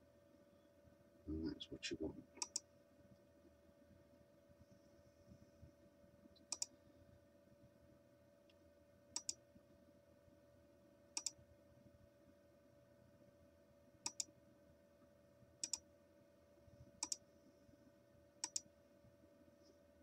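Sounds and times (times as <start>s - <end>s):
faint steady hum: 0.0s - 20.0s
computer mouse button clicking: 2.4s - 2.6s, 6.4s - 6.7s, 9.2s - 9.4s, 11.2s - 11.4s, 14.0s - 14.3s, 15.6s - 15.8s, 17.0s - 17.2s, 18.4s - 18.7s.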